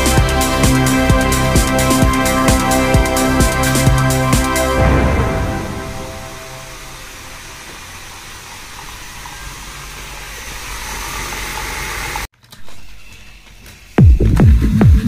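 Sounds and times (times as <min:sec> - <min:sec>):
steady rushing hiss: 0:00.0 - 0:12.3.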